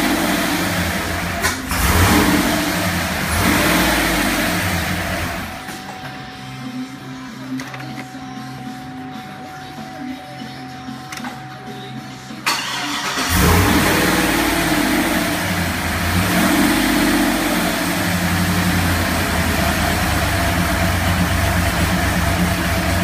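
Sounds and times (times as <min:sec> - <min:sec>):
car engine revving and idling: 0:00.0 - 0:05.8, 0:12.4 - 0:23.0
starter motor cranking: 0:12.5 - 0:14.2.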